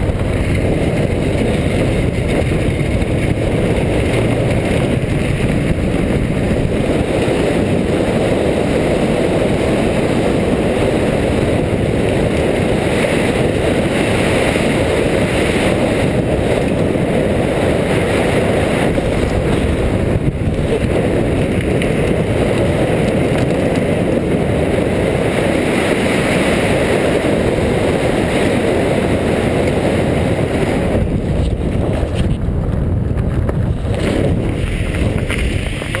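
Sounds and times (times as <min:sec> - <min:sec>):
tyres rolling on dirt: 0:00.0 - 0:25.6, 0:26.6 - 0:36.0
car engine noise: 0:00.0 - 0:36.0
wind rushing over microphone: 0:00.0 - 0:36.0.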